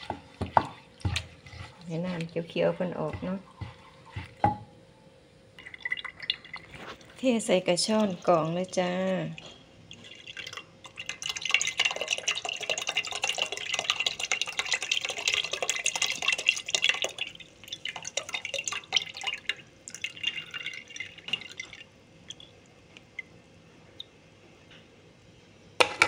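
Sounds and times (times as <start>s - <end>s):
liquid trickling through strainer: 5.6s - 23.3s
liquid dripping: 5.6s - 24.2s.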